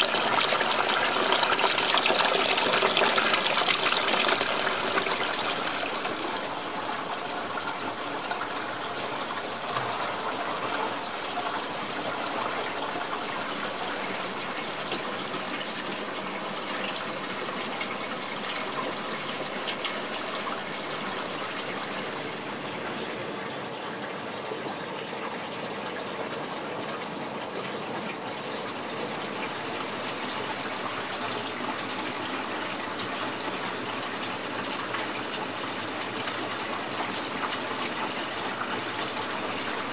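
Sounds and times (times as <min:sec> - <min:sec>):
water pouring from a pipe: 0:00.0 - 0:39.9.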